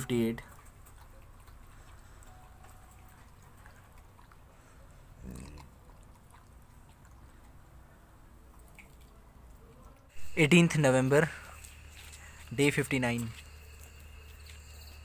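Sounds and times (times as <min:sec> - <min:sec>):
dog eating from steel bowl: 0:00.0 - 0:15.0
low hum: 0:10.1 - 0:15.0.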